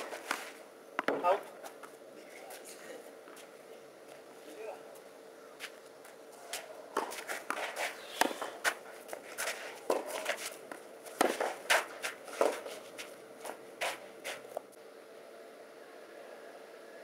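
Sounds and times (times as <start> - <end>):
tennis ball off rackets: 0.0 - 2.0, 6.5 - 14.7
ball bouncing on clay: 1.0 - 1.9
shoes scuffing on clay: 5.6 - 14.6.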